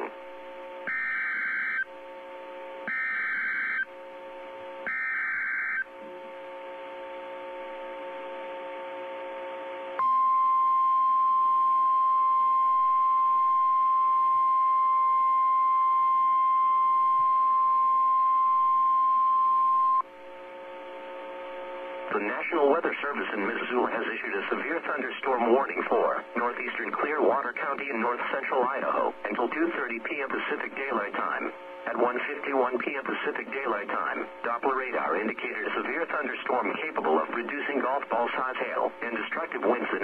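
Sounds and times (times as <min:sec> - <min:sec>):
steady warning alarm tone: 0:00.0 - 0:21.5
low hum: 0:00.0 - 0:22.1
digital data bursts: 0:02.9 - 0:03.9.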